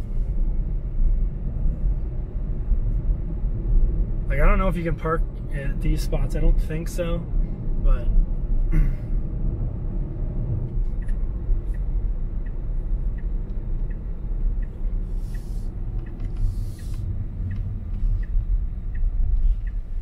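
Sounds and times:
road and tyre rumble: 0:00.0 - 0:20.0
light regular ticking: 0:10.8 - 0:20.0.

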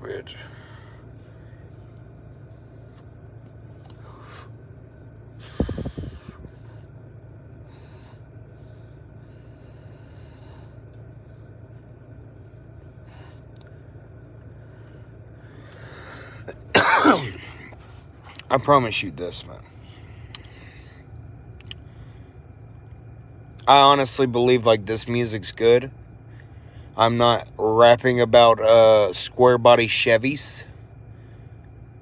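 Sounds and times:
low background hum: 0:00.0 - 0:32.0
man coughing: 0:16.4 - 0:17.8.

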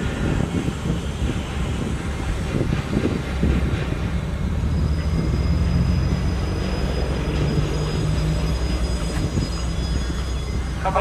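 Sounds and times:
locomotive engine rumble: 0:00.0 - 0:11.0
train coaches rolling: 0:00.0 - 0:11.0
faint high squeal: 0:04.2 - 0:11.0.

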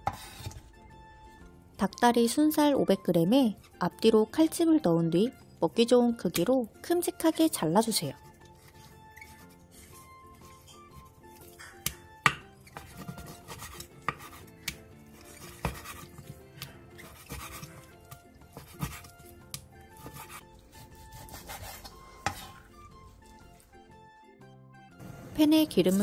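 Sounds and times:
soft background music: 0:00.0 - 0:26.0
knife cutting meat: 0:08.2 - 0:23.6.

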